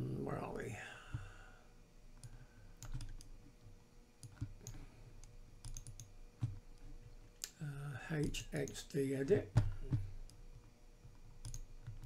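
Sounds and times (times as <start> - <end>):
computer mouse clicks: 2.2 - 3.3, 4.2 - 6.6, 11.0 - 12.0.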